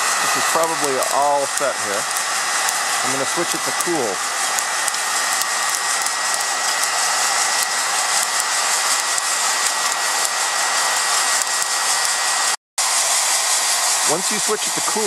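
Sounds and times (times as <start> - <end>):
coffee beans crackling: 0.0 - 10.4
heat gun blowing: 0.0 - 15.0
thin steady whine: 0.0 - 15.0.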